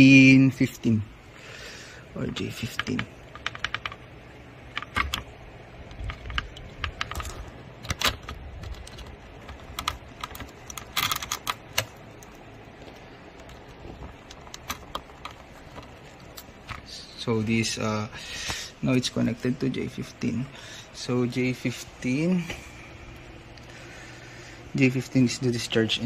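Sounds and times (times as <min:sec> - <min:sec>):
low steady background noise: 0:00.0 - 0:26.0.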